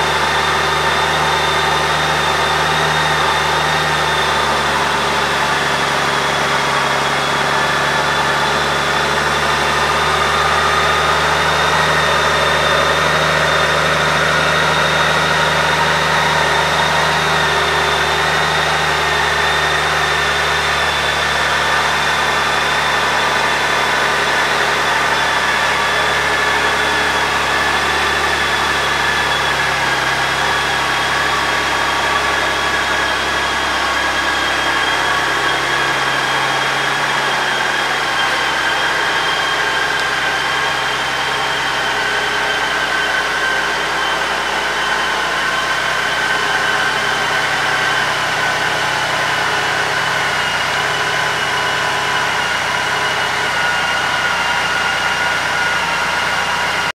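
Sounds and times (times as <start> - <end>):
high whine: 0.0 - 57.0.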